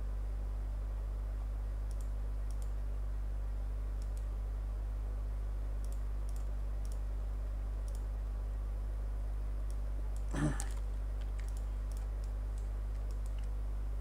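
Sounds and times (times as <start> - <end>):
low electrical hum: 0.0 - 14.0
computer mouse clicks: 1.9 - 2.8, 4.0 - 4.3, 5.8 - 7.1, 7.8 - 8.1, 9.6 - 13.6.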